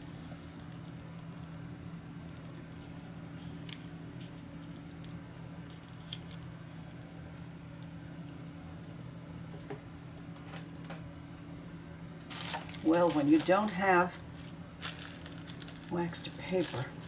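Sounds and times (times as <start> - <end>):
steady low hum: 0.0 - 17.0
paper being handled: 11.3 - 17.0.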